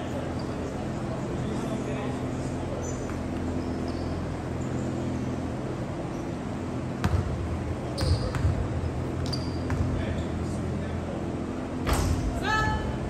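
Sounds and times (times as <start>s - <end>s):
sneaker squeaks: 0.1s - 1.0s, 2.5s - 10.6s
basketball bouncing on wooden floor: 9.2s - 10.0s.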